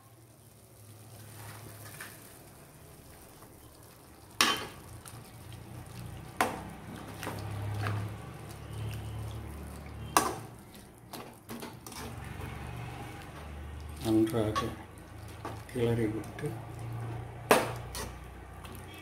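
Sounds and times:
steel cookware clinking: 0:04.4 - 0:04.8.

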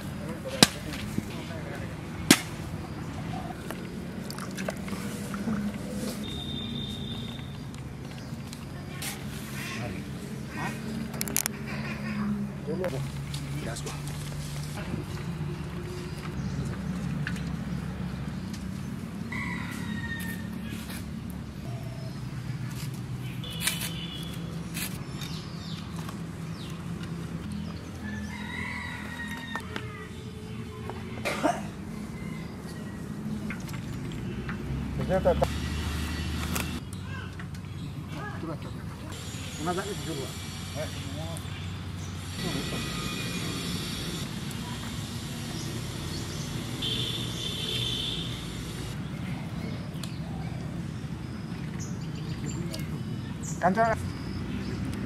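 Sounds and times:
rooster crowing: 0:19.3 - 0:20.7, 0:28.0 - 0:30.1, 0:31.8 - 0:33.4.

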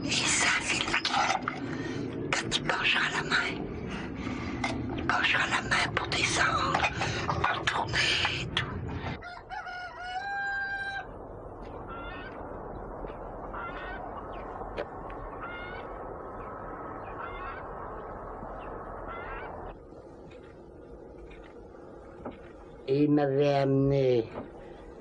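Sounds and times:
steady background hiss: 0:00.0 - 0:01.1, 0:10.2 - 0:25.0
short pitched fowl calls: 0:09.2 - 0:11.1, 0:11.9 - 0:12.4, 0:13.5 - 0:14.2, 0:15.3 - 0:16.0, 0:17.0 - 0:17.7, 0:19.1 - 0:19.7
rooster crowing: 0:09.2 - 0:11.2, 0:11.9 - 0:12.4.

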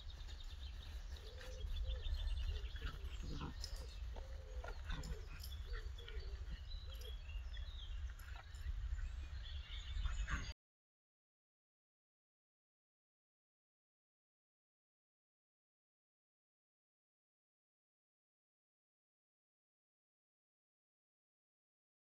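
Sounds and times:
puppies yipping and whining: 0:01.2 - 0:07.5.

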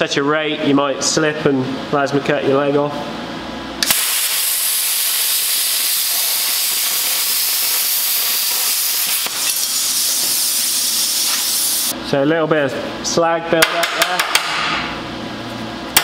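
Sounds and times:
plasma cutter hissing: 0:03.8 - 0:12.0.

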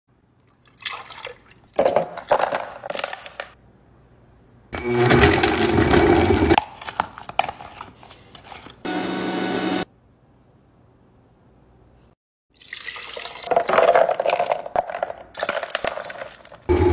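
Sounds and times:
blender running: 0:04.8 - 0:06.6, 0:08.9 - 0:09.8.

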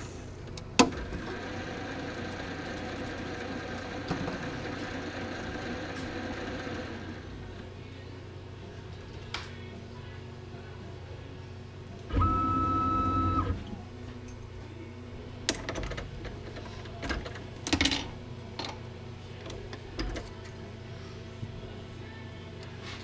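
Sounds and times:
mill motor whining: 0:12.1 - 0:14.0.

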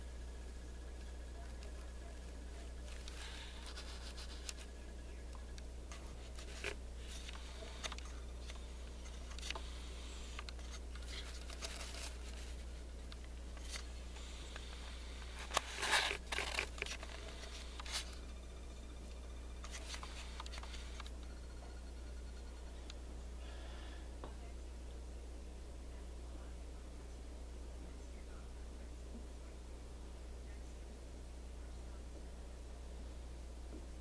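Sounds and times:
faint clicks and scratches: 0:00.0 - 0:25.0
steady low hum: 0:00.0 - 0:34.0
scraping clicks: 0:02.7 - 0:18.3.

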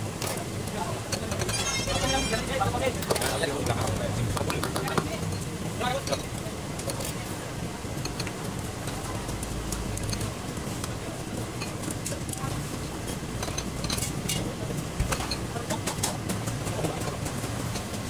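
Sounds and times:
utensils clicking against bowls: 0:01.1 - 0:07.2, 0:08.0 - 0:11.0, 0:13.4 - 0:14.5, 0:15.1 - 0:18.0.

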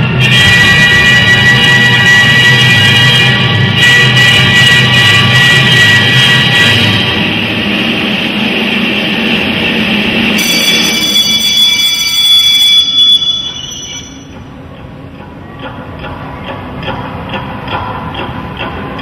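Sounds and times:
noisy wash: 0:00.0 - 0:13.0
screeching high tones: 0:10.4 - 0:14.4.

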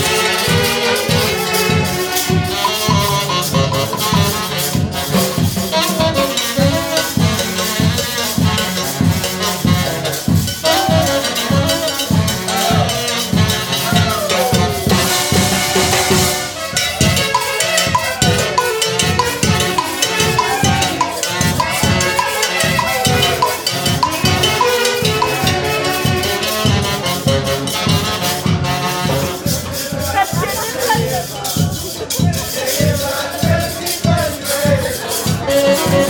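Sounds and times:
dance orchestra playing: 0:00.0 - 0:31.3
cowbell-like percussion: 0:00.0 - 0:36.0
steady drum beat: 0:00.0 - 0:36.0
wind-instrument melody: 0:00.0 - 0:36.0.

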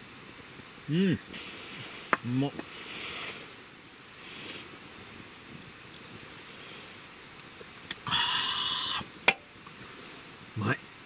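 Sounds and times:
campfire crackling: 0:00.0 - 0:11.0
breathy exhale: 0:02.8 - 0:03.5, 0:08.0 - 0:09.1.

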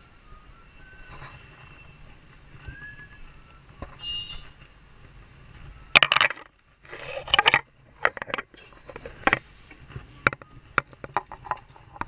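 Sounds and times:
hard objects clicking and clattering: 0:05.9 - 0:09.5, 0:10.2 - 0:12.0.

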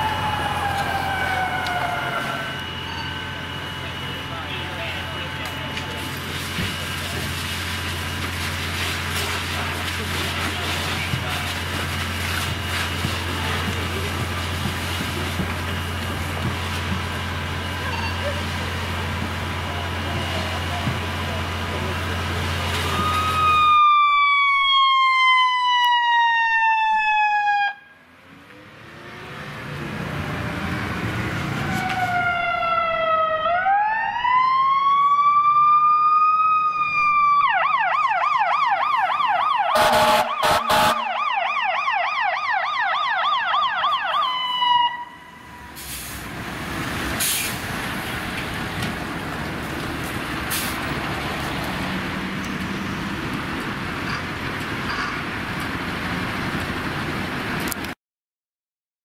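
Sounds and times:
siren wailing and yelping: 0:00.0 - 0:03.9, 0:22.9 - 0:27.9, 0:31.6 - 0:45.7
vehicle engine: 0:00.0 - 0:23.6, 0:28.0 - 0:33.0, 0:45.2 - 0:58.0
traffic noise: 0:00.0 - 0:23.7, 0:27.8 - 0:33.7, 0:36.6 - 0:58.0
loud horn blasts: 0:39.7 - 0:41.2.

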